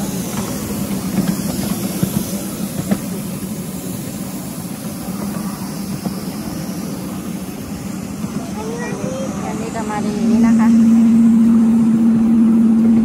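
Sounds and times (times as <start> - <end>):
miniature train running: 0.0 - 10.8.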